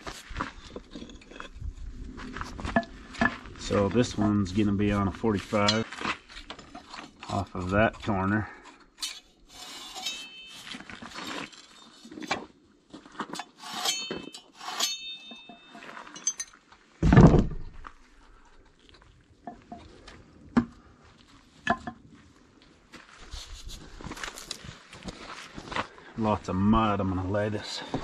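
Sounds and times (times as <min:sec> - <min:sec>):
hand tools clinking: 0:09.0 - 0:12.1, 0:13.4 - 0:16.6
heavy thump: 0:17.0 - 0:17.9.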